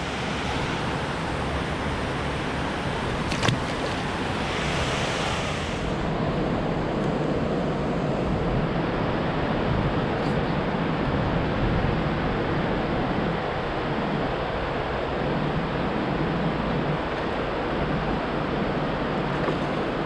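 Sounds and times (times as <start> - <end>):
river water flowing: 0.0 - 20.0
paddle splashing into water: 3.2 - 4.4
wind rushing: 3.4 - 6.9.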